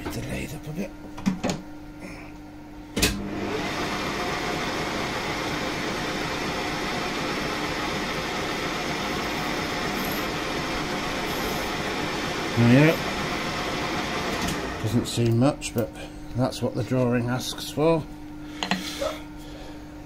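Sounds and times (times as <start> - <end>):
lathe spindle whirring: 3.2 - 15.3.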